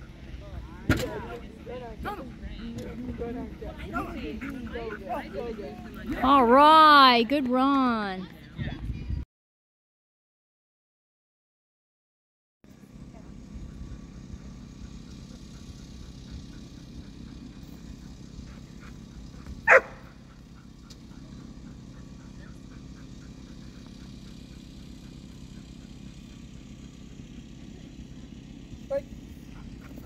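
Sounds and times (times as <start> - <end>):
dog barking: 19.6 - 20.2.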